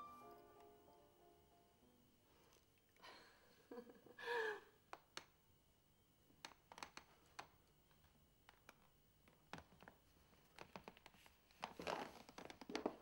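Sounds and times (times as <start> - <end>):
woman's voiced sigh: 4.2 - 4.7.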